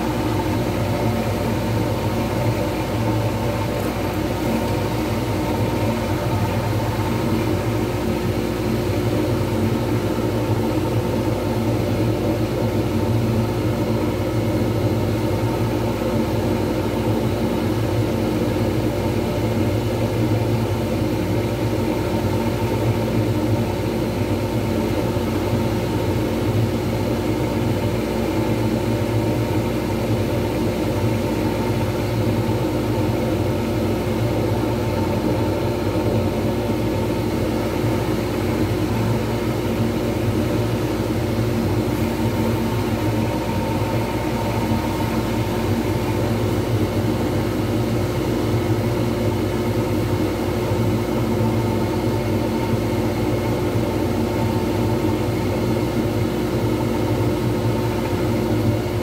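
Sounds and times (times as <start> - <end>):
wood lathe humming: 0.0 - 9.6.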